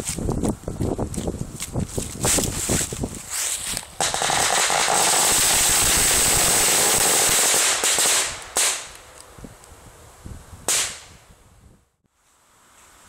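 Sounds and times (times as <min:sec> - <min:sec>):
firecracker string bangs: 0:10.7 - 0:11.2.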